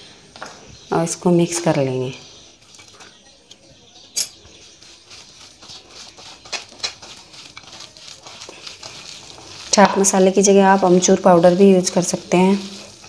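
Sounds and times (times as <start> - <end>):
hand squishing wet food: 2.6 - 13.0.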